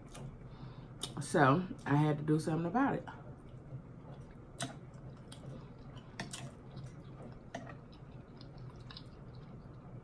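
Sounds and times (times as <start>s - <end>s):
person chewing food: 3.3s - 10.0s.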